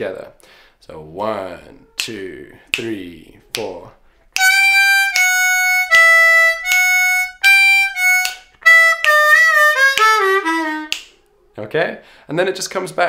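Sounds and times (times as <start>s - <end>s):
blues harmonica solo: 4.3s - 11.1s.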